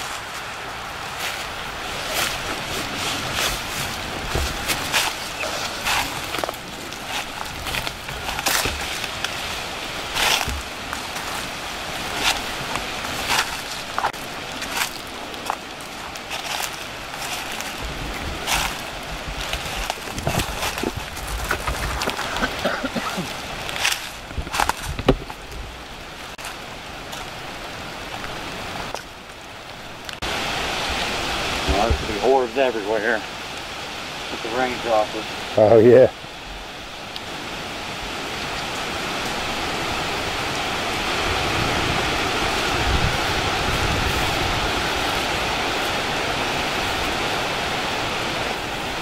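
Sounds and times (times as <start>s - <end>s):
footsteps crunching through dry leaves: 0.0s - 29.4s, 39.3s - 49.0s
steady hiss: 0.0s - 49.0s.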